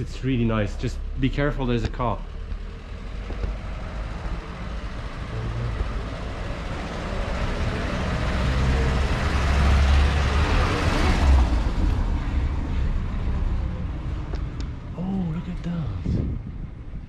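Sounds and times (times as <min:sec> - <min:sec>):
car passing on cobbles: 0:00.6 - 0:13.5.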